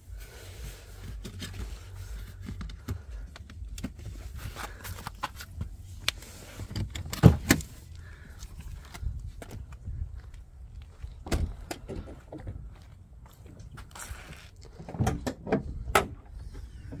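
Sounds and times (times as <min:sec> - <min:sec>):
clicks rustles and knocks in car: 0:06.6 - 0:07.8, 0:14.7 - 0:17.0.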